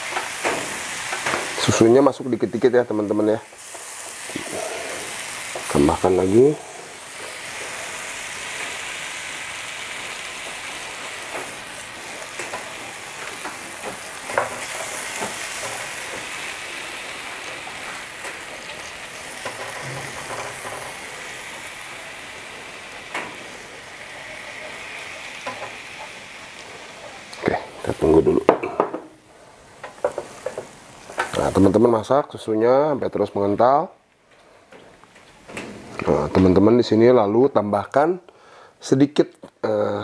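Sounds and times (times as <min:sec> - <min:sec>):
milk sizzling in a frying pan: 0:00.0 - 0:31.8
spatula tapping and scraping pan: 0:13.4 - 0:16.2.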